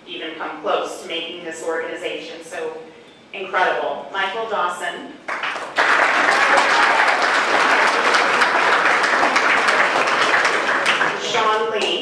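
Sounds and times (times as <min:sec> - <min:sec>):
audience applauding: 0:05.3 - 0:11.6.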